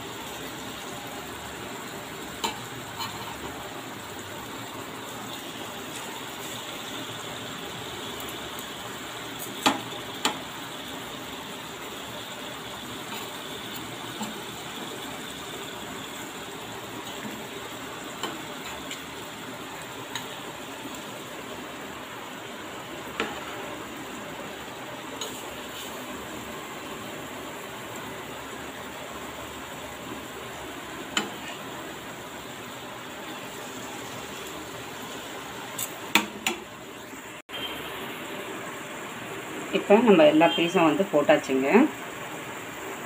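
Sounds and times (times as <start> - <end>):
fish sizzling in oil: 0.0 - 43.0
taps and clicks on pan: 36.1 - 36.6.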